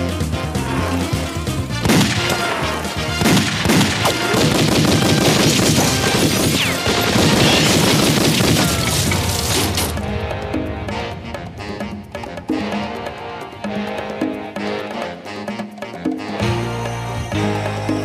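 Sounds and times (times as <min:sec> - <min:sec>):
background music: 0:00.0 - 0:18.0
cartoon gunshots: 0:01.8 - 0:09.7.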